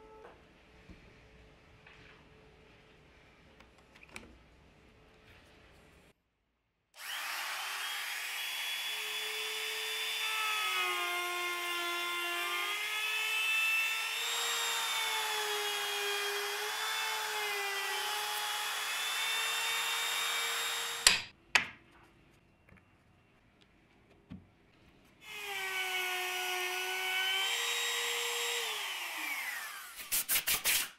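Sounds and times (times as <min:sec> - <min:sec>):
router motor whine cutting wood: 0:07.0 - 0:21.1, 0:25.3 - 0:30.0.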